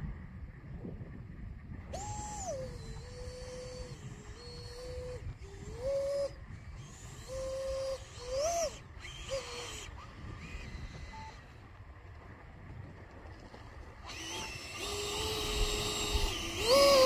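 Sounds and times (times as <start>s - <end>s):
low wind rumble: 0.0s - 17.0s
model plane motor whining: 1.8s - 11.8s, 13.5s - 17.0s.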